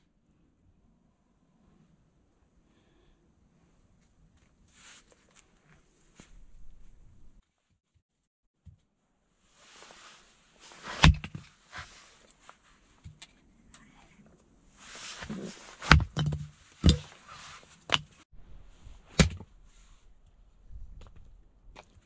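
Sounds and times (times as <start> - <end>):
rustling: 3.6 - 7.7, 9.5 - 22.0.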